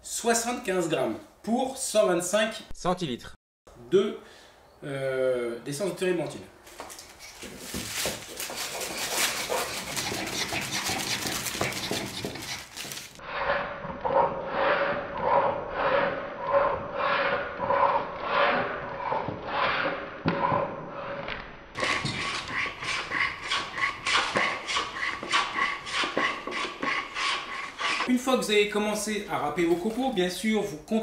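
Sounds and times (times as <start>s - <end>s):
wax rasping on plane blade: 7.2s - 13.6s, 21.8s - 28.1s.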